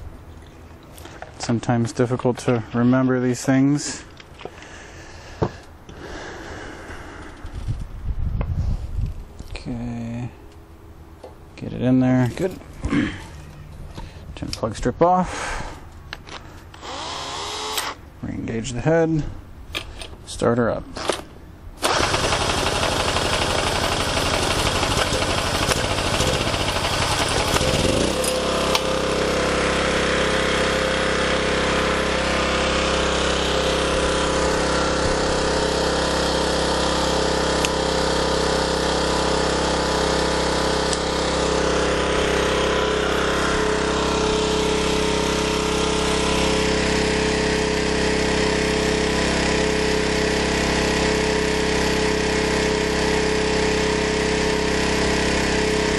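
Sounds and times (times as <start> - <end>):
generator engine running: 21.8 - 55.9.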